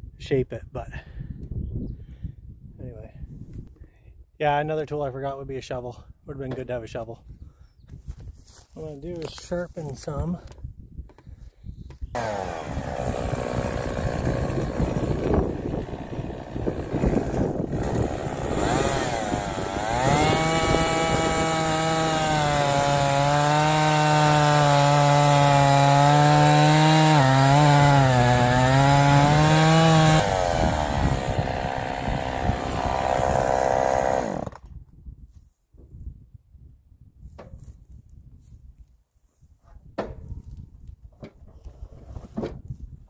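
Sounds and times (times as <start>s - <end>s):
chainsaw cutting wood: 12.1s - 34.7s.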